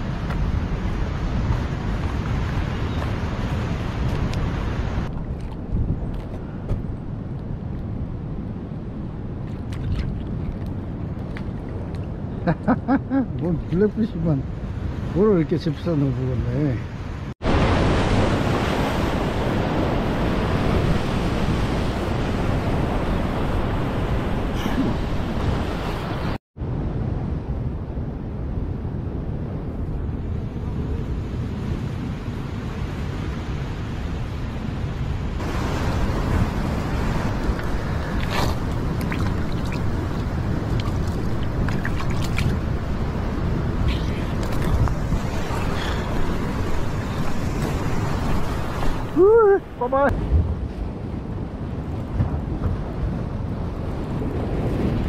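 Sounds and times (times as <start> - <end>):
wind buffeting microphone: 0.0 - 15.5, 16.2 - 55.0
surf washing on rocks: 17.4 - 26.4, 32.2 - 55.0
surf breaking over rocks: 35.4 - 50.6.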